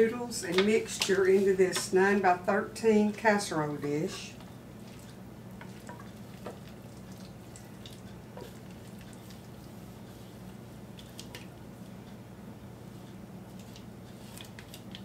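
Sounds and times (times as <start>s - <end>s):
steady low hum: 0.0s - 15.0s
wet squishes of food: 4.2s - 12.1s, 12.8s - 15.0s.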